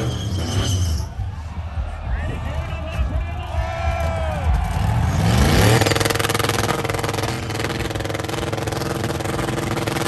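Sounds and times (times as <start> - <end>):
car engine revving: 4.5 - 10.0.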